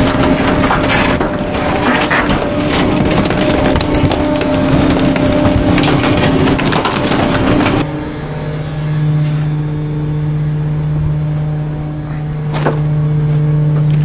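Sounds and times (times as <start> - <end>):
crackling and clatter: 0.0 - 7.9
garbage truck engine: 0.0 - 14.0.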